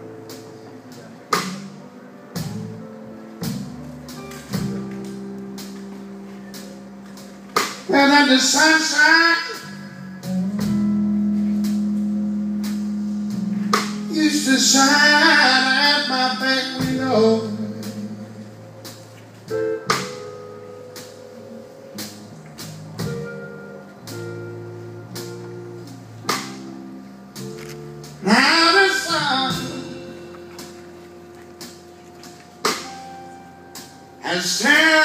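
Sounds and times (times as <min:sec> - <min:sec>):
bass notes: 0:00.0 - 0:35.0
electric guitar: 0:00.0 - 0:35.0
man singing: 0:07.9 - 0:10.0, 0:14.1 - 0:18.5, 0:28.2 - 0:30.2, 0:34.2 - 0:35.0.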